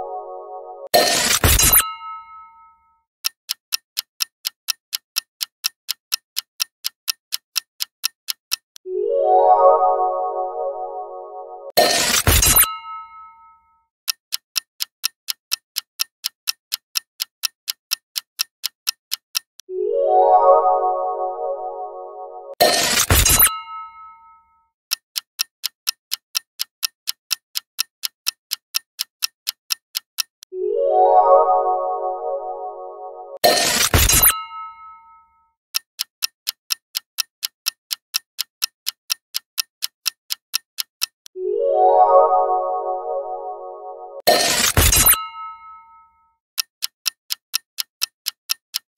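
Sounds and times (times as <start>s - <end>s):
clock ticking: 0.8s - 2.3s, 3.2s - 8.9s, 11.7s - 13.4s, 14.1s - 19.7s, 20.6s - 24.2s, 24.9s - 30.5s, 31.6s - 35.0s, 35.7s - 41.4s, 46.6s - 48.9s
chime ringing: 19.8s - 22.6s, 30.6s - 33.4s, 41.4s - 44.2s.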